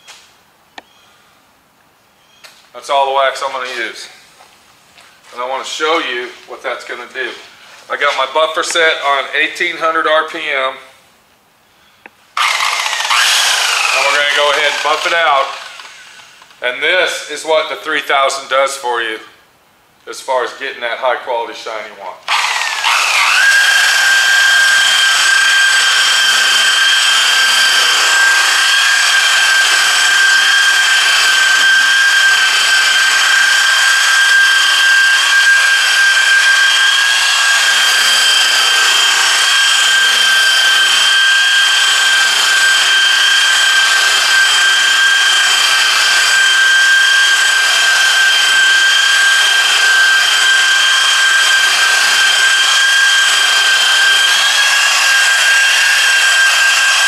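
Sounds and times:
rotary buffer motor whine: 12.4 - 16.6, 22.3 - 57.0.

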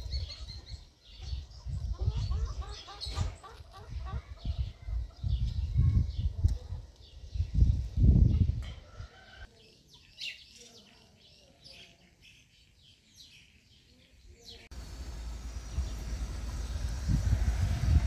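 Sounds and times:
chickens: 0.0 - 5.7, 8.4 - 9.5
songbirds chirping: 0.0 - 18.0
gusty low rumble: 14.7 - 18.0
steady low rushing noise: 14.7 - 18.0.

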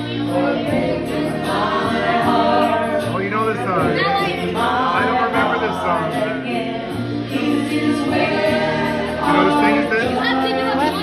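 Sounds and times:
background music: 0.0 - 11.0
woman singing into microphone: 4.0 - 11.0.

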